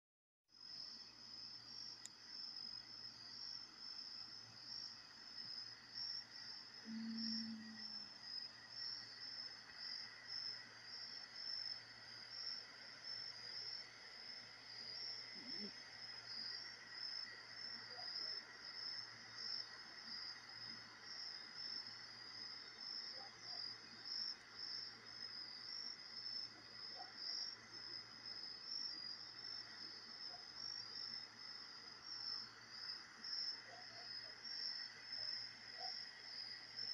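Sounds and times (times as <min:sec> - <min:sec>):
crickets chirping: 0:00.6 - 0:36.9
faint low hum: 0:04.7 - 0:18.4
brief low tone: 0:06.8 - 0:08.1.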